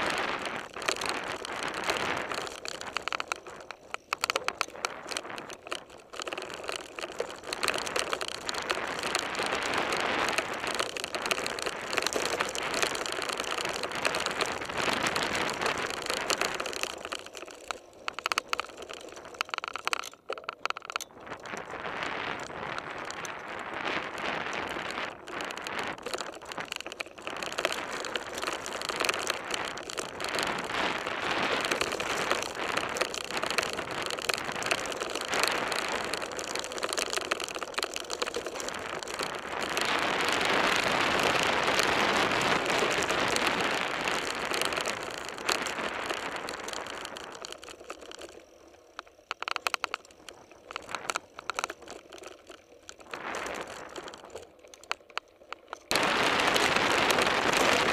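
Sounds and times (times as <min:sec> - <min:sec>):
bike tyres crunching on gravel: 0:00.0 - 0:57.9
rattling clicks: 0:00.3 - 0:23.4, 0:42.6 - 0:57.9.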